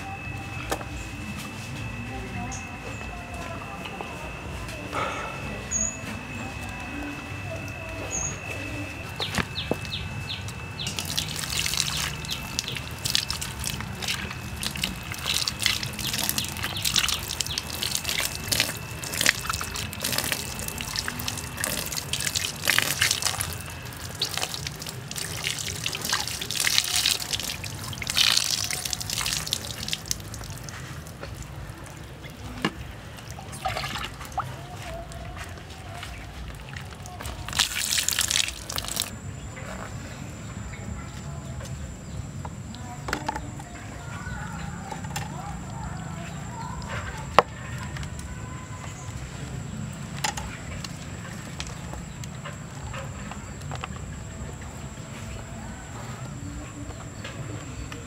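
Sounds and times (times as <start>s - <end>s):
water splashing and dripping: 9.2s - 35.3s, 36.0s - 39.2s
hands rubbing wet carcass: 10.5s - 32.6s, 33.2s - 39.1s.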